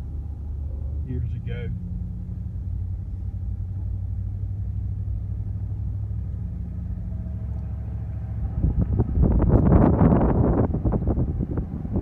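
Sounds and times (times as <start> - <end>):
vehicle engine and tyres rumbling: 0.0 - 12.0
wind buffeting microphone: 8.4 - 12.0.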